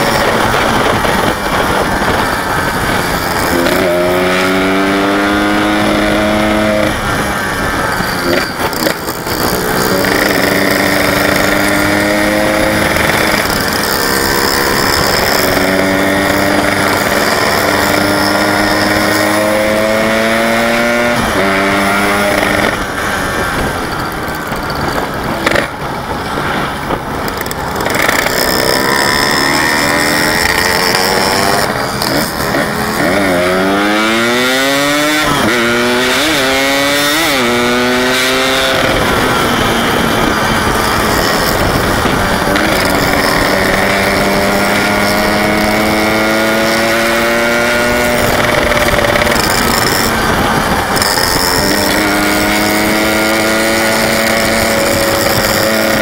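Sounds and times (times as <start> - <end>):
motorcycle engine revving: 0.0 - 56.0
road and wind noise: 0.0 - 56.0.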